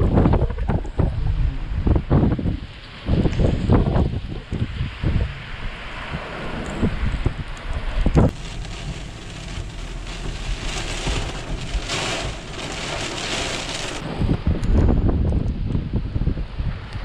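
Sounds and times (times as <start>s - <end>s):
wind buffeting microphone: 0.0s - 17.0s
heavy rain on car roof: 8.3s - 14.0s.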